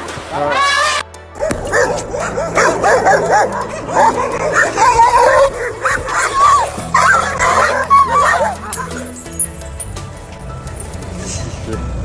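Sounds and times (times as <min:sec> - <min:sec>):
background music: 0:00.0 - 0:12.0
animals yelping and barking: 0:00.6 - 0:09.9.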